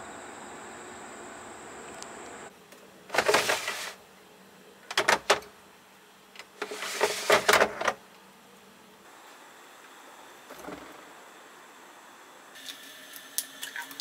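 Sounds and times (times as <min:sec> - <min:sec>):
plastic drawer sliding and rattling: 0:03.1 - 0:04.0, 0:06.6 - 0:08.0, 0:10.5 - 0:11.0.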